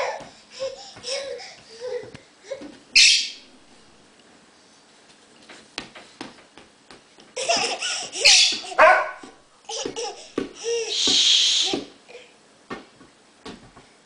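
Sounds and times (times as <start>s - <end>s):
toddler laughing and squealing: 7.4s - 8.8s.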